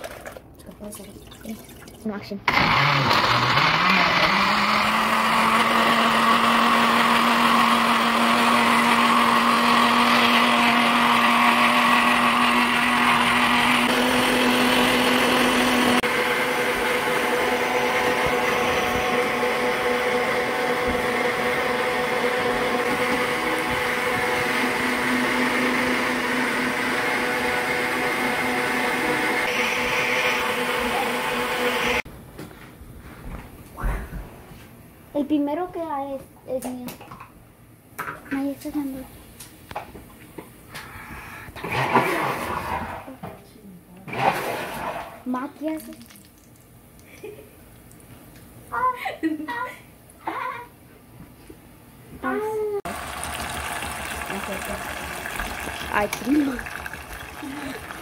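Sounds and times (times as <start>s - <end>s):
blender motor running: 2.5s - 32.0s, 41.6s - 43.1s, 52.9s - 58.0s
steady motor hum: 52.2s - 58.0s.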